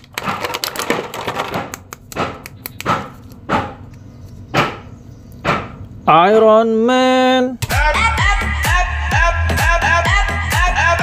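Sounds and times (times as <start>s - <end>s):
plastic bag crinkling: 0.0s - 1.6s.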